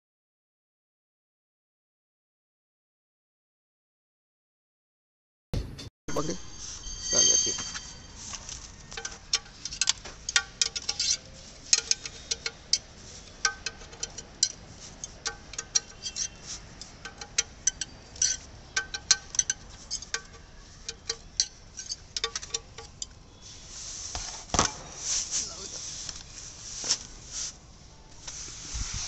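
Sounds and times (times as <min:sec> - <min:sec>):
rustling noise: 0:06.4 - 0:17.0, 0:23.4 - 0:29.0
ratchet wrench clicking: 0:09.0 - 0:23.1.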